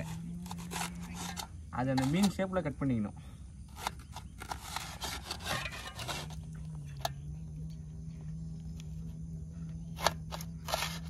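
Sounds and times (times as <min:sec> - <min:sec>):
cleaver scraping and sawing: 0:00.0 - 0:02.6, 0:03.7 - 0:06.6, 0:09.9 - 0:11.0
steady low hum: 0:00.0 - 0:11.0.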